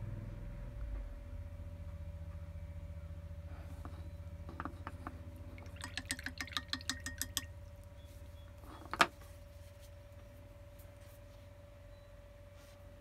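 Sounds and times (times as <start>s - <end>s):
paintbrush clinking glass jar: 5.6s - 9.1s.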